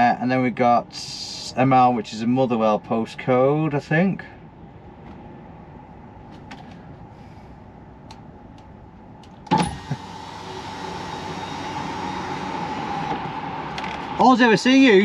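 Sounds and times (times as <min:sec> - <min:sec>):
electric window motor whine: 0:09.5 - 0:14.2.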